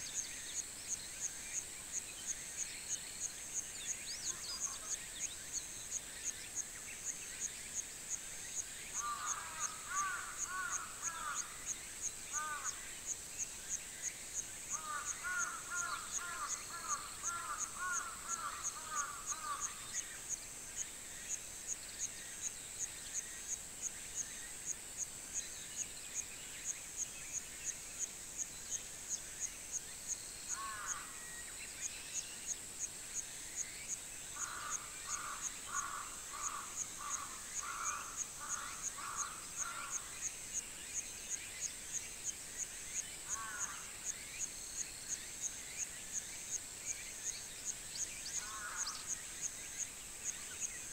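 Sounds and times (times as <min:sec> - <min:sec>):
insect chirping: 0:00.0 - 0:50.9
crows cawing: 0:09.0 - 0:11.6, 0:12.3 - 0:12.8, 0:14.7 - 0:19.8, 0:30.5 - 0:31.1, 0:34.4 - 0:40.0, 0:43.4 - 0:43.8, 0:48.4 - 0:49.0.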